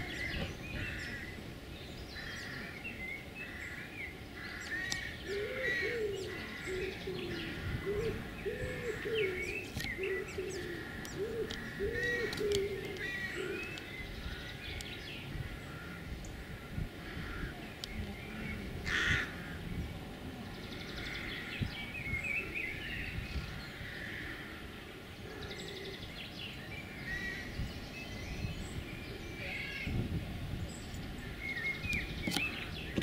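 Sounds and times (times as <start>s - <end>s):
songbirds chirping and trilling: 0.0s - 33.0s
pigeon cooing: 5.2s - 13.7s.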